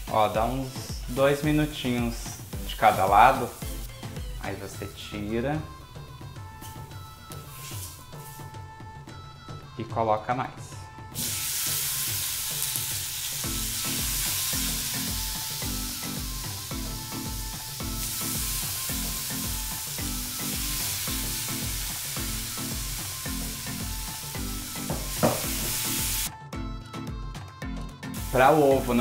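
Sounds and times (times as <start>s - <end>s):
food sizzling in a frying pan: 0.0s - 4.7s, 6.6s - 8.5s, 11.2s - 26.3s, 28.2s - 29.0s.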